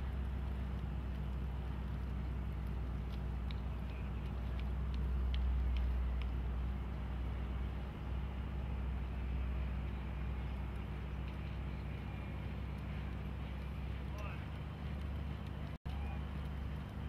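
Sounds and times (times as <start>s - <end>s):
low background hum: 0.0s - 17.0s
faint clicks: 0.4s - 6.4s.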